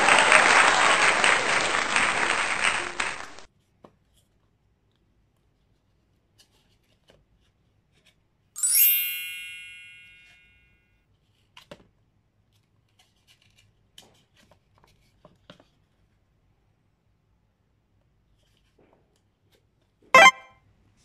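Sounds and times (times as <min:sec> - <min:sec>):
bright chime: 0:08.6 - 0:10.5, 0:20.2 - 0:20.5.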